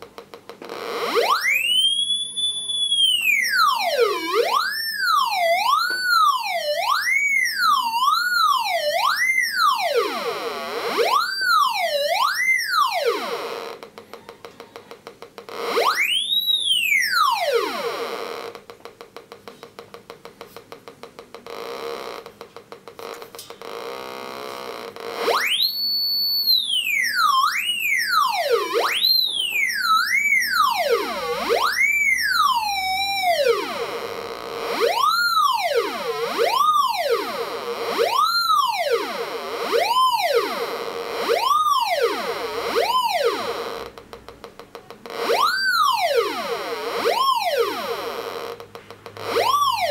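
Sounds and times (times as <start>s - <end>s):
high held tone: 0.7s - 13.8s, 23.1s - 44.0s, 45.1s - 49.9s.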